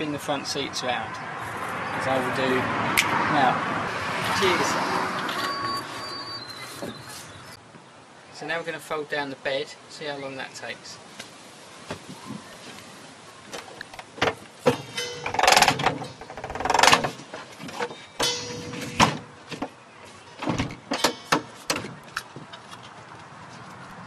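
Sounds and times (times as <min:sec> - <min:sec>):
seat latches clicking and clunking: 0:13.6 - 0:19.3, 0:20.4 - 0:22.3.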